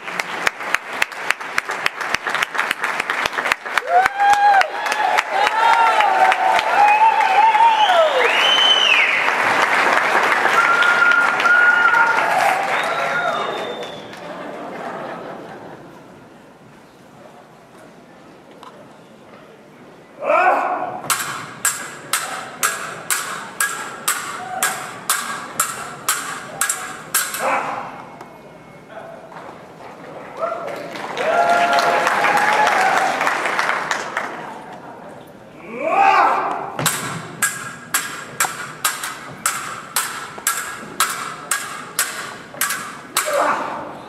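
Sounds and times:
swords clashing and ringing: 21.1s - 27.8s, 36.9s - 43.8s.

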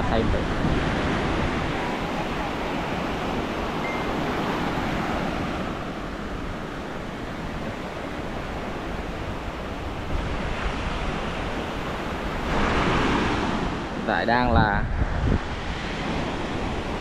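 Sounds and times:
surf washing onto beach: 0.0s - 17.0s
wind rushing over microphone: 0.0s - 17.0s.

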